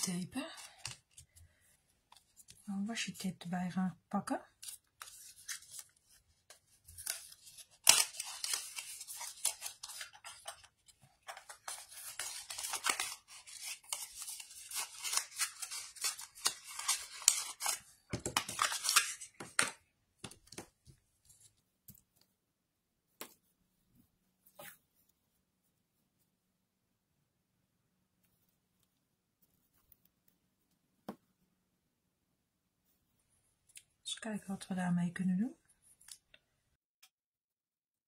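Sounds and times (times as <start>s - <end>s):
tape peeling and rustling: 4.6s - 19.4s.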